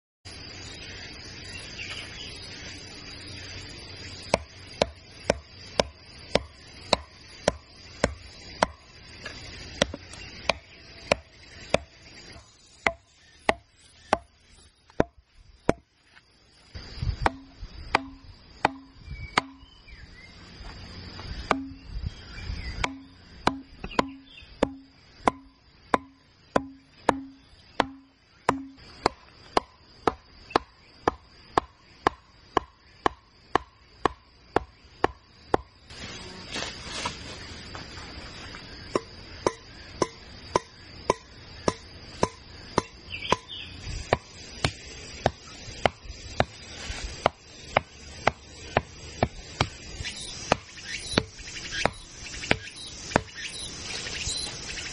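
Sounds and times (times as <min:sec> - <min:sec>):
insects buzzing: 0:00.3 - 0:54.9
wood pounding bamboo stake: 0:04.2 - 0:15.9, 0:17.2 - 0:19.8, 0:21.4 - 0:21.9, 0:22.8 - 0:35.8, 0:38.9 - 0:53.7.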